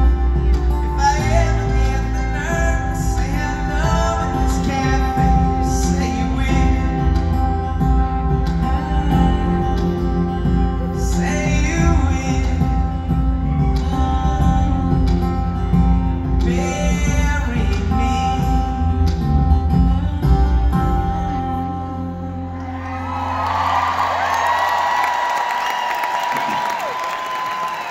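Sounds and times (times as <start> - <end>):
lead vocal singing: 0.0 - 21.1
live band playing slow song: 0.0 - 27.9.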